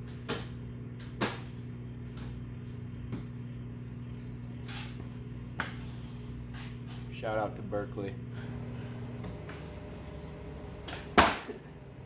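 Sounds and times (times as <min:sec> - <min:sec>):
steady low hum: 0:00.0 - 0:12.0
short scrape: 0:04.6 - 0:05.0.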